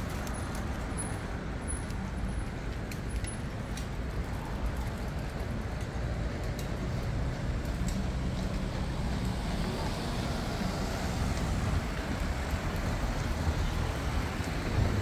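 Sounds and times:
low rumble of road traffic: 0:00.0 - 0:15.0
faint light ticks: 0:04.7 - 0:09.3.

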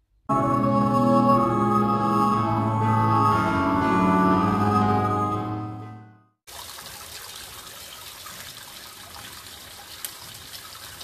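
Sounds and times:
water splashing into floor drain: 0:06.5 - 0:11.0.

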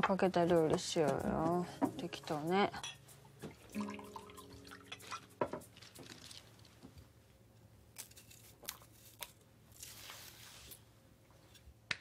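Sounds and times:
liquid pouring into a glass: 0:03.6 - 0:06.5.

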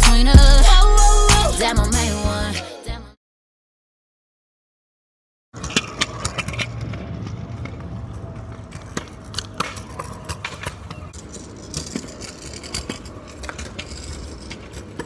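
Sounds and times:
road traffic rumble: 0:05.6 - 0:15.0.

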